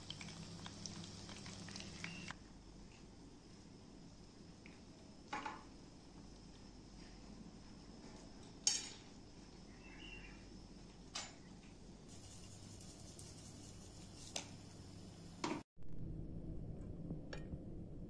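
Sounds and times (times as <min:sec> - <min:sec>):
faint steady hiss: 0:00.0 - 0:08.2.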